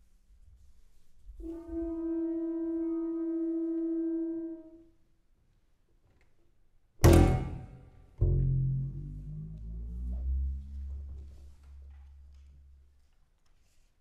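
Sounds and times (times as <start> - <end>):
wind instrument holding a note: 1.4 - 4.9.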